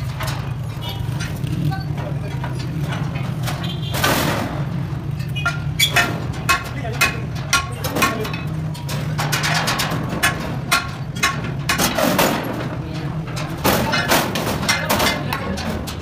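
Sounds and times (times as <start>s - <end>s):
metal clanks and knocks: 0.0s - 16.0s.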